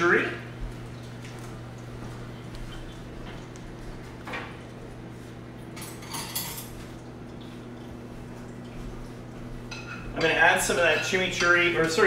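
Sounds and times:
dishes and utensils clattering: 5.8 - 6.8, 9.7 - 12.0.

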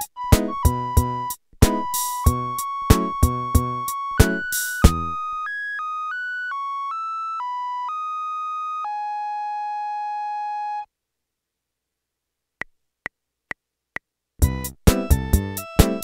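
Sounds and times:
reedy electronic keyboard melody: 0.0 - 10.9.

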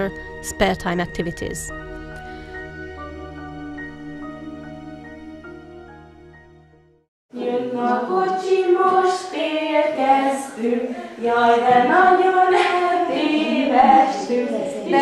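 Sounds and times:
group of voices singing: 7.3 - 15.0.

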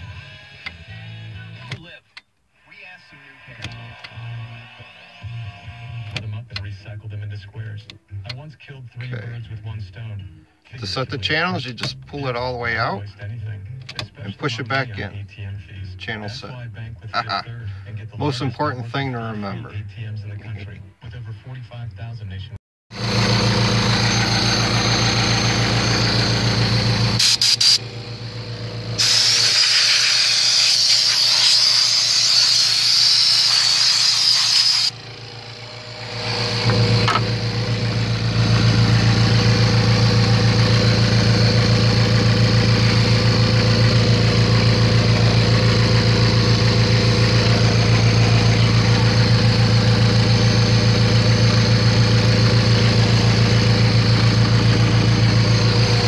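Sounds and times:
engine idling: 22.9 - 56.0
loud hiss of air: 29.0 - 32.4.

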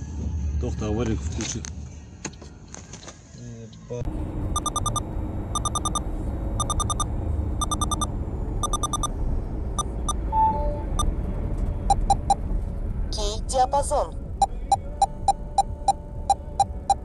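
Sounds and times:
car road and engine rumble: 0.1 - 17.0
electronic alert beeps: 4.6 - 5.0, 5.6 - 9.1, 9.8 - 11.1, 11.9 - 12.4, 14.4 - 17.0.

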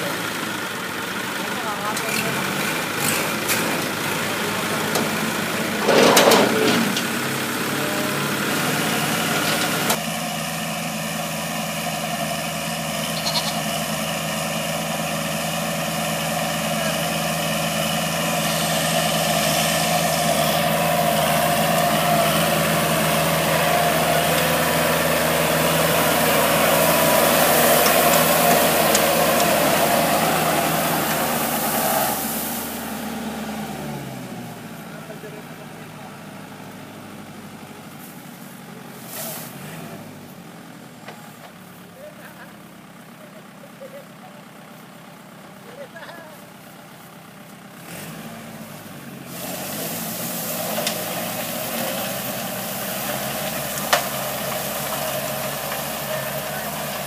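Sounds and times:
tractor diesel engine running: 0.0 - 57.0
rotary tiller working soil: 1.4 - 10.4, 12.0 - 35.4, 45.4 - 57.0.

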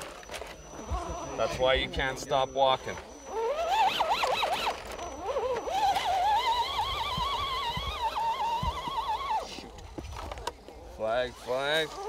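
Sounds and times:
dog whining: 3.1 - 9.6.

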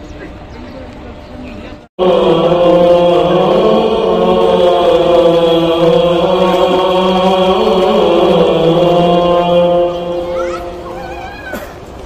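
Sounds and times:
chanting in long held notes: 2.0 - 11.6.

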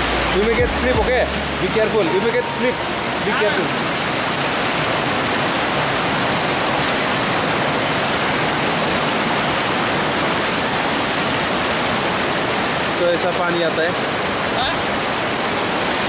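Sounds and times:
stream rushing over rocks: 0.0 - 16.0
waterfall cascading: 0.0 - 16.0.

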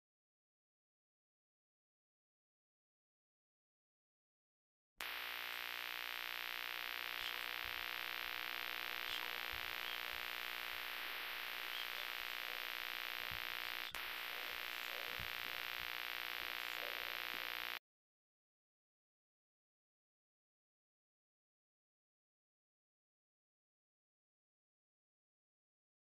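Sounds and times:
faint hum: 5.0 - 17.8
steady hissing drone: 5.0 - 17.8.

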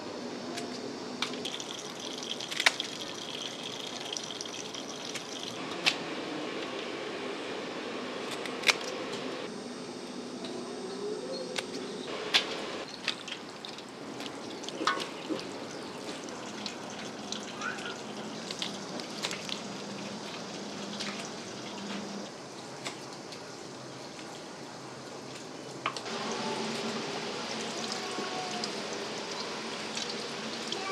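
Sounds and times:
water running from a hose: 1.2 - 5.6, 12.1 - 24.6, 26.0 - 30.9.

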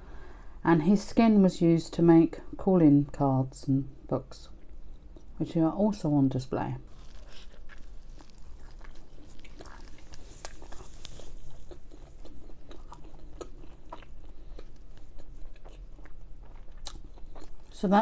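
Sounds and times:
person biting into bread: 6.9 - 17.7
wet chewing mouth sounds: 6.9 - 17.8.

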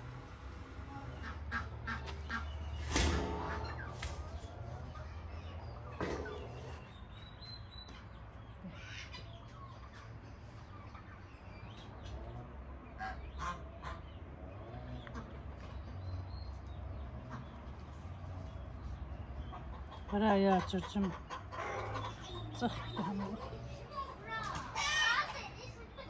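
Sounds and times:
geese or ducks honking: 1.0 - 5.0, 13.0 - 14.2, 19.5 - 23.7.

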